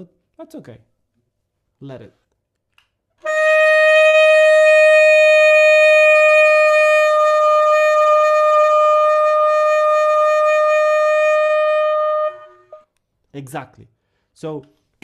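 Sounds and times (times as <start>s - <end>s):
saxophone long steady note: 3.2s - 12.8s.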